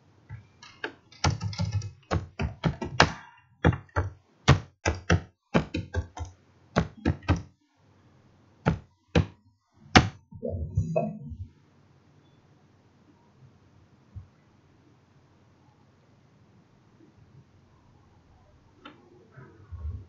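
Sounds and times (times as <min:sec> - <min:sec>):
typing on computer keyboard: 0:00.3 - 0:07.5.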